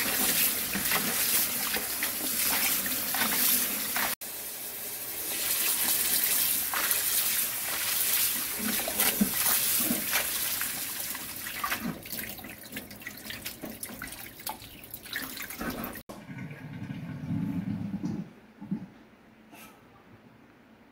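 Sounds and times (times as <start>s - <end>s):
drips and small splashes: 0.0s - 4.2s, 5.3s - 16.0s.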